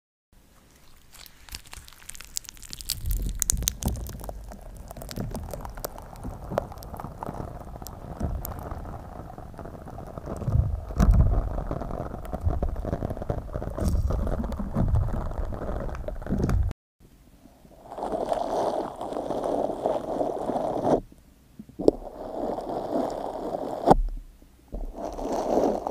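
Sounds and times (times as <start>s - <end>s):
slime squishing: 0.5s - 16.7s, 17.8s - 21.1s, 21.8s - 24.0s, 24.8s - 25.9s
air bubbles popping: 0.8s - 16.7s
low thuds: 3.0s - 16.7s.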